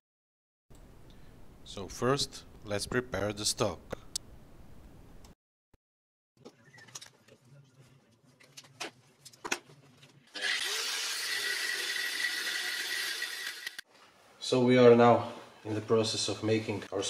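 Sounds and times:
angle grinder cutting steel: 10.3 - 13.8.

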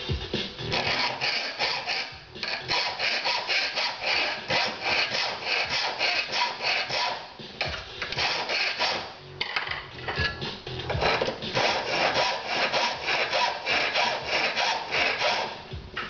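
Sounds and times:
file rasping on metal: 0.7 - 7.3, 8.0 - 9.1, 11.0 - 15.6.

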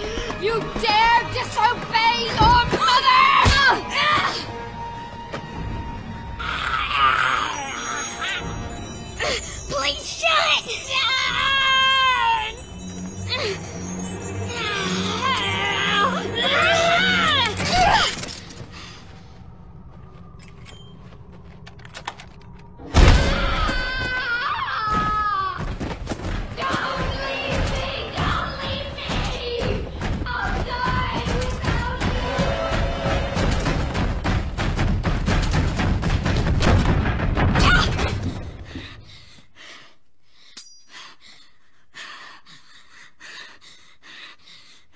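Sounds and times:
low dark drone: 12.8 - 24.5
faint creaks and clicks: 20.2 - 22.8
crashing rumble of impacts: 33.3 - 38.6.

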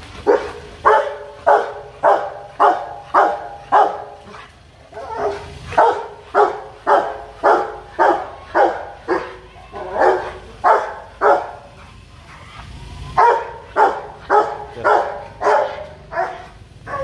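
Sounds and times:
dog barking loudly: 0.2 - 12.6, 13.2 - 17.0.

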